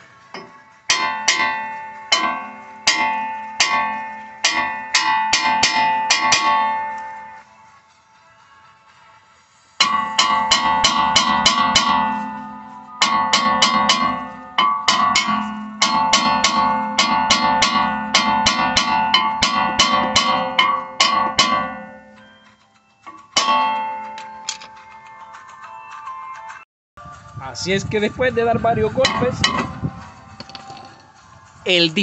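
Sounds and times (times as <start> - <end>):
metal disc ringing: 0.3 - 7.4, 9.8 - 25.3, 28.7 - 31.0
hammer blows on brake rotor: 0.3 - 7.5, 9.8 - 24.7, 28.6 - 30.9.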